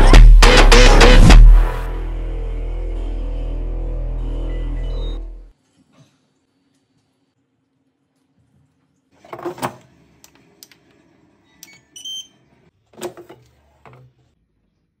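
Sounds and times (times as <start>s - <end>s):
air fryer electronic beep: 4.4s - 5.3s, 11.6s - 12.4s.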